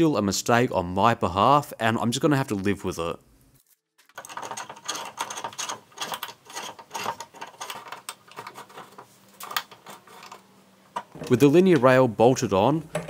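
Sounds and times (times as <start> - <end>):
allen key turning a screw: 4.0 - 11.4
metallic clicks and rattles: 4.0 - 11.9.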